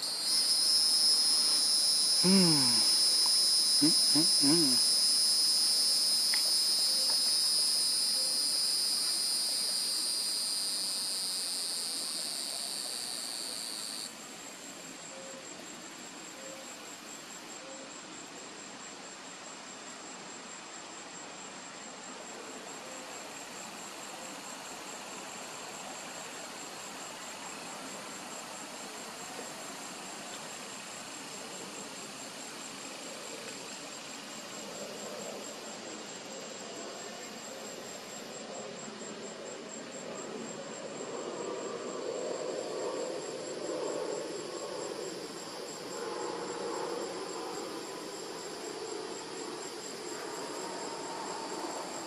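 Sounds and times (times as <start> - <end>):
insects trilling: 0.0 - 14.1, 27.0 - 52.0.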